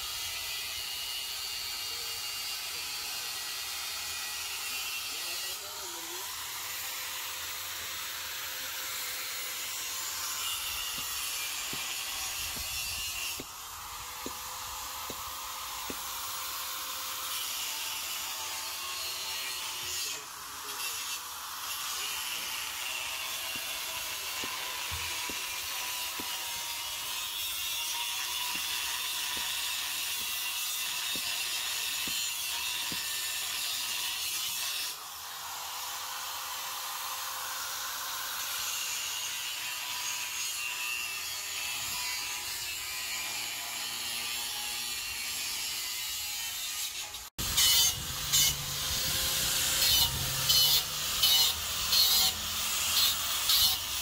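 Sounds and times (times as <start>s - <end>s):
angle grinder on pipe: 0.0s - 54.0s.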